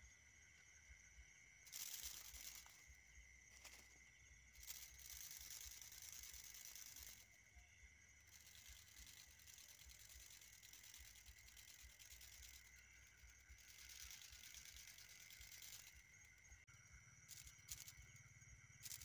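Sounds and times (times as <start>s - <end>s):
high insect trill: 0.0s - 19.0s
dry grass and leaves rustling: 1.7s - 2.9s, 3.5s - 4.0s.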